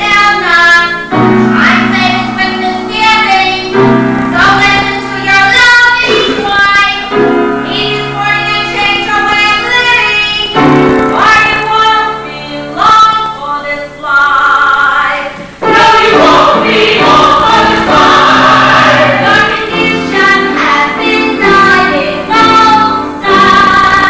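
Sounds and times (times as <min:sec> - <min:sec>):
musical accompaniment: 0:00.0 - 0:24.0
voices singing in chorus: 0:14.2 - 0:24.0.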